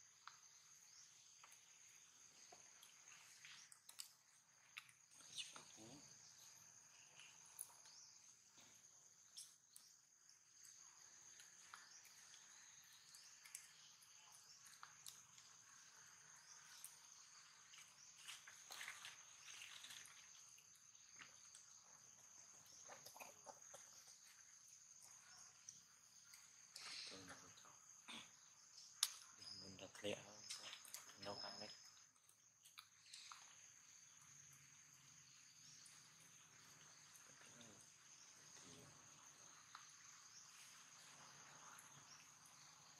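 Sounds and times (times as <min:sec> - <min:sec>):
high insect drone: 0:00.0 - 0:42.9.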